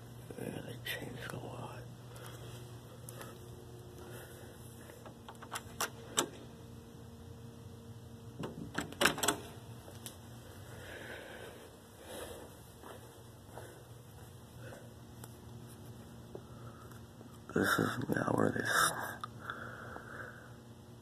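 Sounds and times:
door knob latch clicking and rattling: 5.3s - 6.4s, 8.4s - 9.4s.

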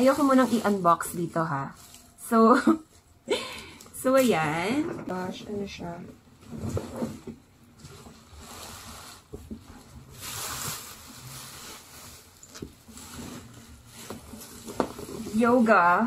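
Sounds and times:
bubble wrap crinkling: 0.0s - 3.3s, 7.7s - 16.0s.

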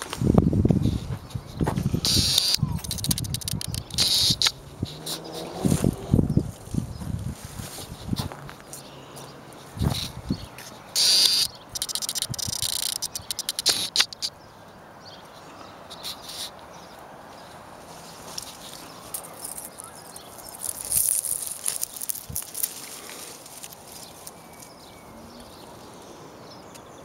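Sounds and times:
leaves rustling against microphone: 0.0s - 14.4s, 15.2s - 27.0s.

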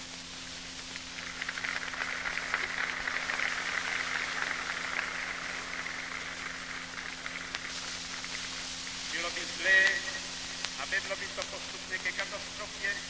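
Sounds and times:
record crackle: 0.0s - 13.0s
steady low hum: 0.0s - 13.0s
crowd applauding: 1.1s - 8.6s.

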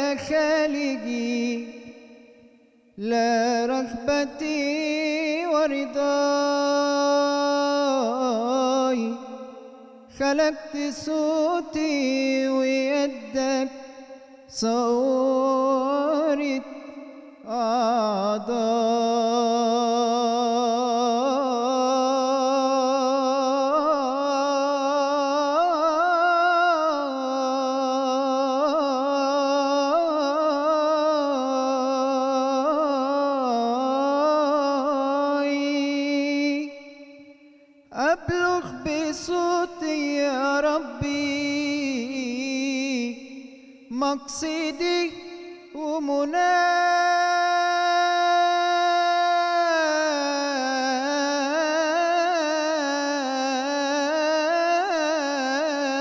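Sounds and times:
man singing unaccompanied: 0.0s - 56.0s.

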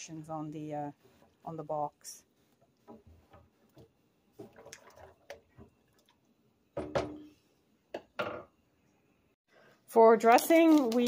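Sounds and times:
spoon stirring pasta in water: 2.6s - 6.4s.

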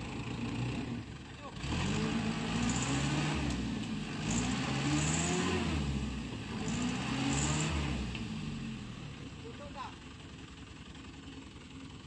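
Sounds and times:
diesel truck engine revving: 0.0s - 9.3s.

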